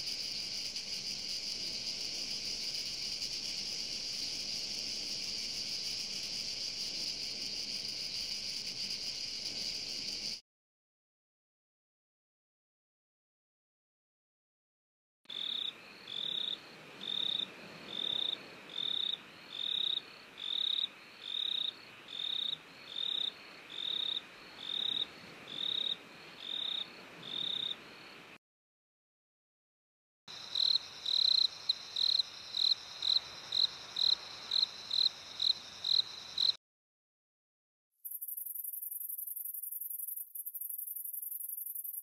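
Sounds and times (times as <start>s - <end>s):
faint hiss: 0.0s - 10.4s
insects chirping: 0.0s - 10.4s, 15.3s - 28.2s, 30.3s - 36.6s, 38.0s - 42.0s.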